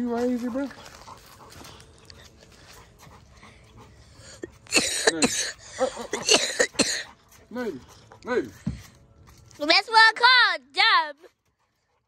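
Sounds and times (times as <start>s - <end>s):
dog panting: 0.0s - 4.7s, 5.9s - 9.4s, 11.2s - 12.0s.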